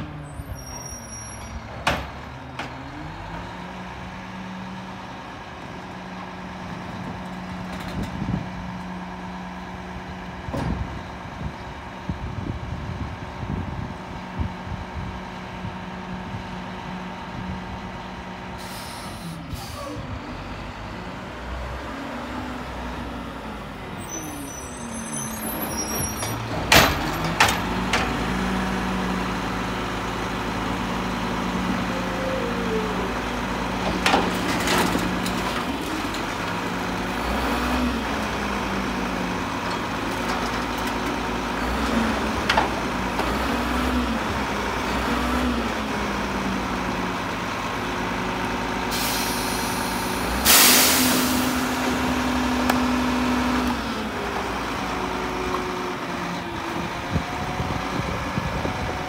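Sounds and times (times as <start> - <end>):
diesel truck engine revving: 0.0 - 7.1, 12.2 - 59.0.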